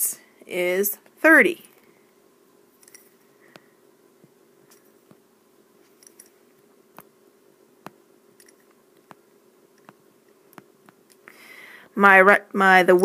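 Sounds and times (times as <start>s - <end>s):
soft breathy hiss: 0.0s - 12.1s
low steady hum: 0.0s - 13.0s
stylus tapping on tablet screen: 7.8s - 8.0s, 9.0s - 11.1s.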